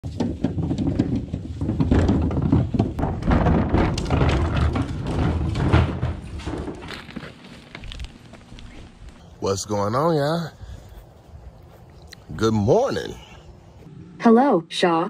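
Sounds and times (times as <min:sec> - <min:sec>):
trash bin wheels rumbling: 0:00.0 - 0:09.1.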